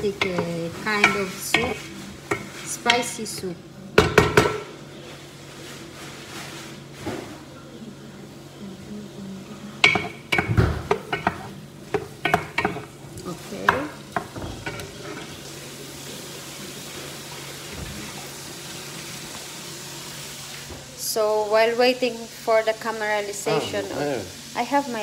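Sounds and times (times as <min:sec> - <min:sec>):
wooden ladle knocking a pan: 0:00.0 - 0:03.2, 0:04.0 - 0:04.7, 0:09.8 - 0:12.9, 0:13.6 - 0:15.2
aromatics sizzling in a pan: 0:00.0 - 0:25.0.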